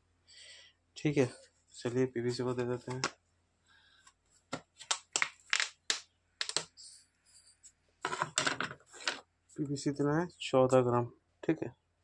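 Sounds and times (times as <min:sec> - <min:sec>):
plastic containers clattering: 0:04.6 - 0:06.7, 0:08.1 - 0:09.2
plastic containers clicking and knocking: 0:04.6 - 0:06.7, 0:08.1 - 0:09.2.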